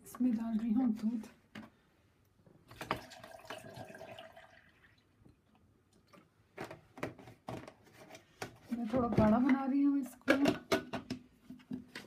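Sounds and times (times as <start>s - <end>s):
milk pouring into blender jar: 2.8s - 5.1s.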